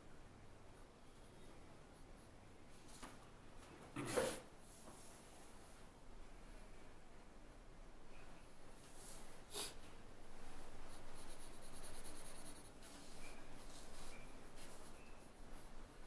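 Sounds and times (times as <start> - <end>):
pencil scratching on paper: 10.8 - 15.0.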